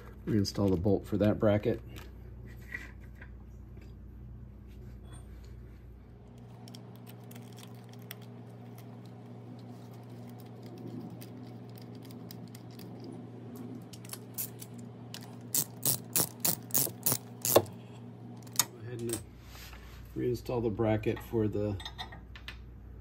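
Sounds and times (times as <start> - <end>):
low hum: 0.0 - 20.8.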